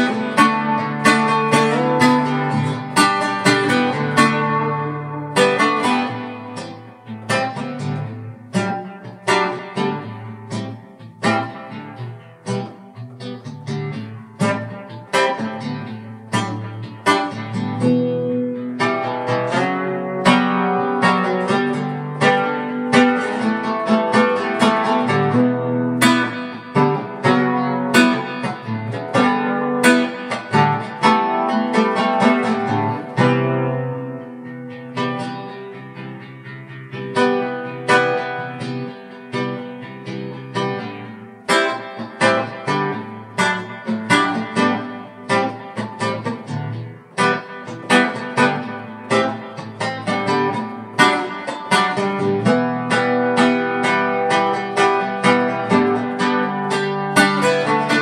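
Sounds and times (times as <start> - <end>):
solo guitar playing: 0.0 - 58.0.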